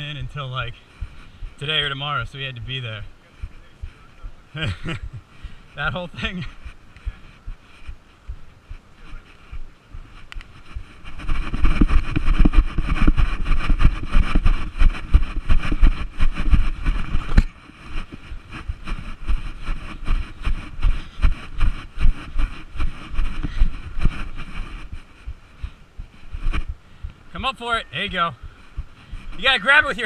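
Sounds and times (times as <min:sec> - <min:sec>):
running footstep thuds: 0:00.0 - 0:30.0
wind rumbling on a microphone: 0:00.0 - 0:30.0.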